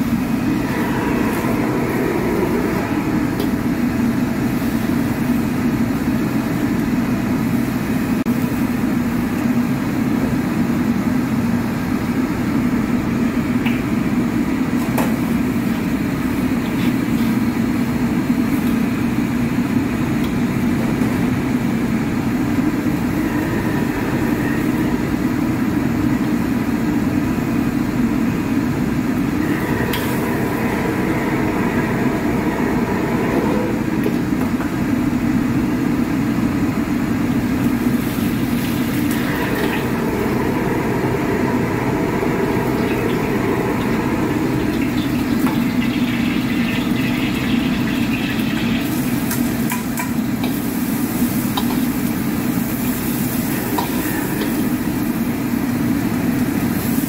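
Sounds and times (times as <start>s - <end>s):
gas burner roaring: 0.0s - 57.0s
food sizzling in hot oil: 44.2s - 55.4s.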